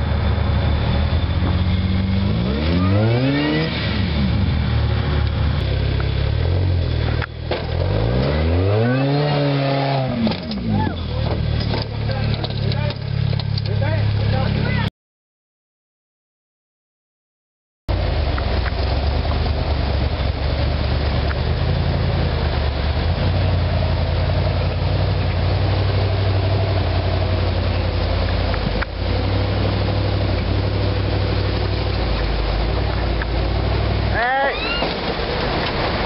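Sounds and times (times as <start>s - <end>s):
engine running at low revs: 0.0s - 14.9s, 17.9s - 36.0s
creek water rushing: 17.9s - 36.0s.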